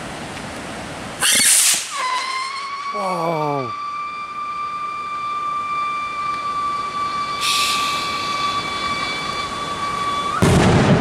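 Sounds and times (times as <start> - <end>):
short hiss: 1.2 - 2.2, 7.4 - 9.4
whistle rocket whistling: 1.2 - 11.0.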